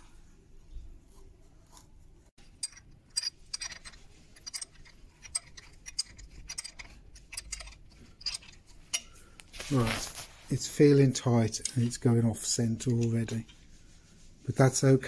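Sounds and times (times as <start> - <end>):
screw clicking and creaking into wood: 2.6 - 9.0.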